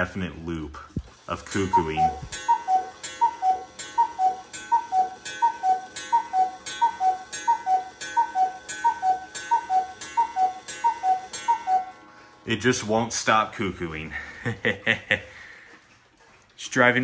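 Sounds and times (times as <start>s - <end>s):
cuckoo clock call: 1.2s - 13.1s.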